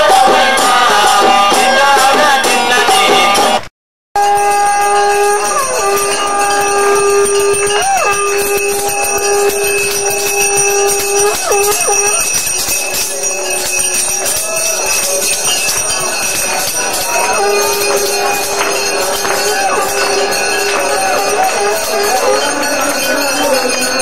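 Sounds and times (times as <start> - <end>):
long held note: 4.2 - 12.7
small bells jingling: 4.2 - 24.0.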